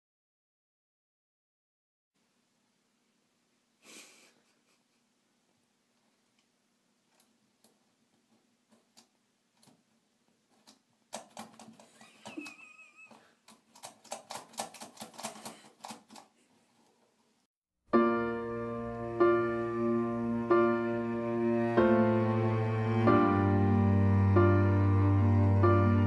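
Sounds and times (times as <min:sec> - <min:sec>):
soft piano music: 0:17.9 - 0:26.0.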